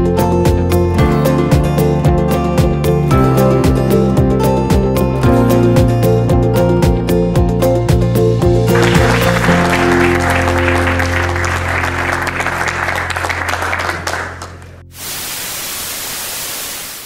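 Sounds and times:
background music with low note: 0.0s - 15.0s
audience applause: 8.7s - 14.8s
static hiss: 14.9s - 17.0s.

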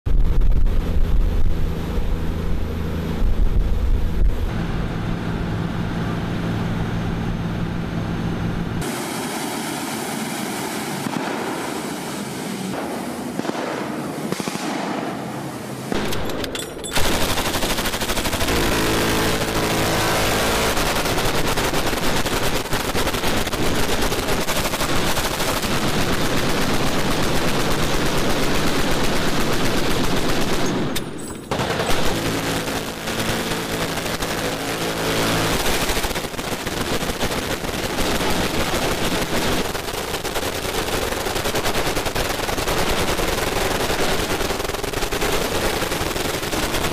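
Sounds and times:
boat engine running: 0.1s - 11.4s, 15.7s - 46.9s
minigun fire: 0.1s - 46.9s
machine gun fire: 10.8s - 46.9s.

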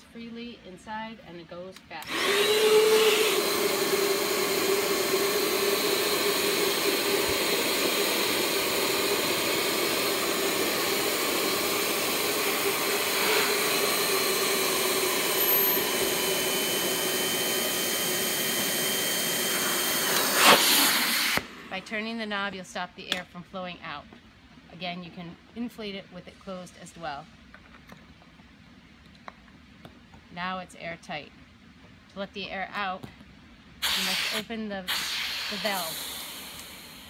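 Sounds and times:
electric air pump running: 1.9s - 22.1s, 33.8s - 37.0s.

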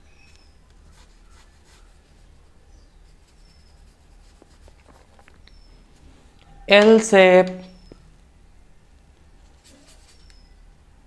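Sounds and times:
faint high chirps: 0.0s - 4.0s, 5.4s - 6.8s, 7.6s - 8.2s, 9.8s - 10.8s
low steady hum: 0.0s - 11.0s
paintbrush swishing on paper: 0.7s - 5.3s, 9.4s - 10.3s
small ticks: 10.1s - 10.5s.

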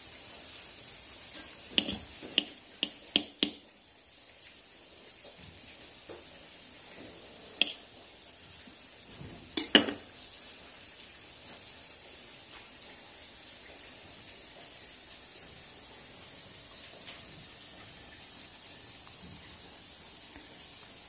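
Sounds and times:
faint steady hiss: 0.0s - 21.0s
knife clinking on ceramic plate: 1.8s - 3.6s, 9.6s - 10.0s.

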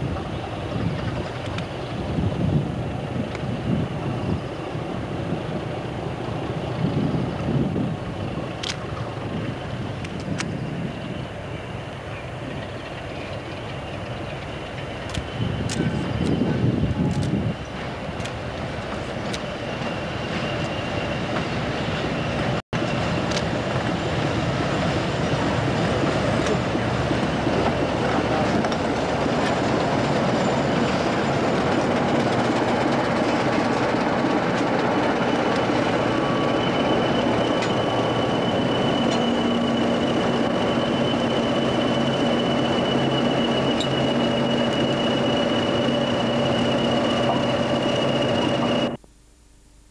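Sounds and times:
diesel locomotive engines running: 0.0s - 49.0s
high-pitched wheel squeal: 35.1s - 49.0s.

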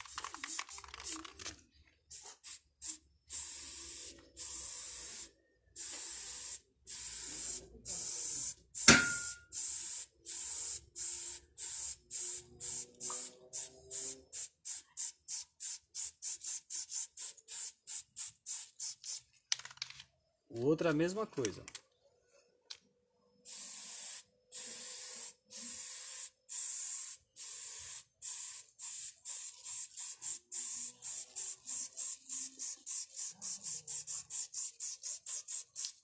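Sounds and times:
spray paint can hissing: 0.0s - 19.2s, 23.4s - 36.0s
sharp knock: 8.9s - 9.4s.

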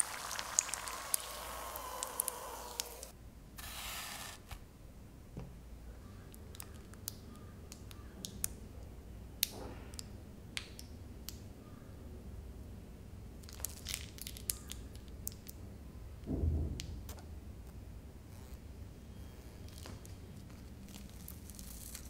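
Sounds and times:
frying oil sizzling: 0.0s - 3.1s.

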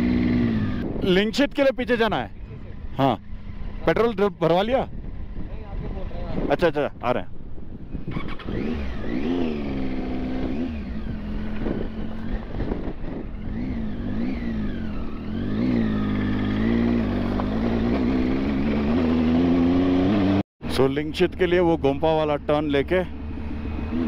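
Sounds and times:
motorcycle engine revving: 0.0s - 1.8s, 2.5s - 6.4s, 7.8s - 20.4s, 22.7s - 24.0s.

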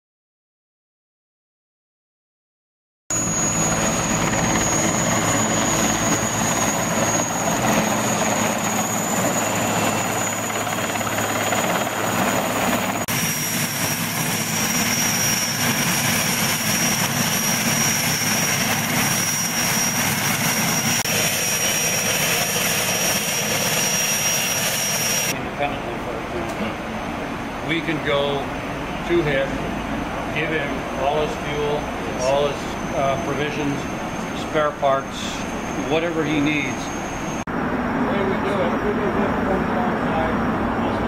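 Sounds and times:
helicopter rotor noise: 3.1s - 41.0s
high turbine whine: 3.1s - 41.0s.

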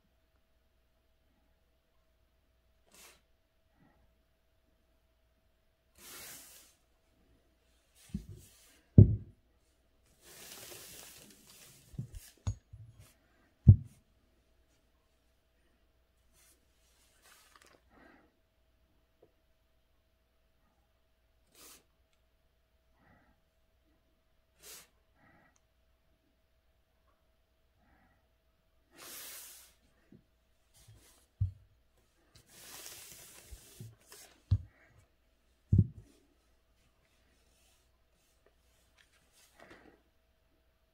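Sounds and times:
dull thumps on desk: 9.0s - 9.4s, 13.7s - 14.0s, 35.8s - 36.1s
brush and paper rustling: 10.1s - 13.1s, 16.4s - 17.8s, 32.2s - 34.7s, 35.8s - 39.9s
paper rustle: 10.2s - 12.4s, 17.2s - 17.8s, 32.4s - 34.5s.

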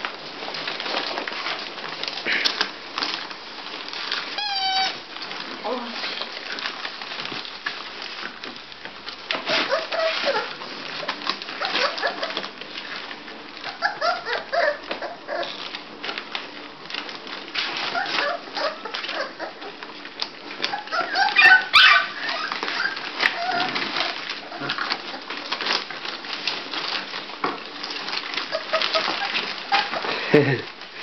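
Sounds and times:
newspaper rustling: 0.0s - 31.0s
puppies whimpering and squeaking: 0.5s - 6.7s, 9.3s - 16.1s, 17.0s - 30.3s.

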